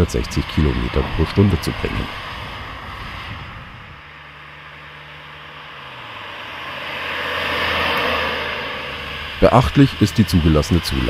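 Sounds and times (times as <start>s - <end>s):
tyre and wind noise: 0.0s - 4.1s
car engine hum: 0.0s - 11.0s.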